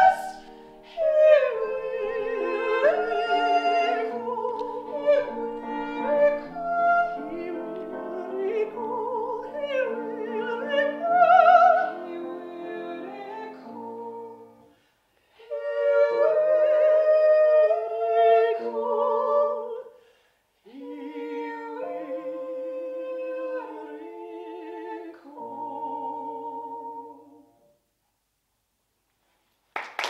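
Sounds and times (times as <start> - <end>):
women singing duet with vibrato: 0.0 - 14.6, 15.4 - 20.0, 20.7 - 27.6
singers breathing: 20.0 - 20.6.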